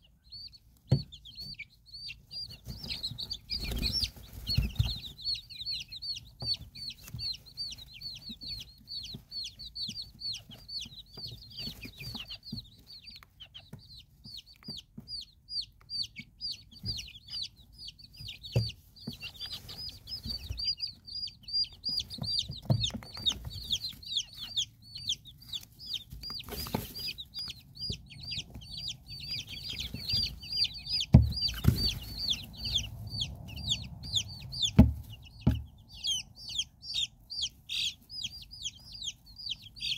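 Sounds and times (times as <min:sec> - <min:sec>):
chicks peeping: 0:00.0 - 0:39.9.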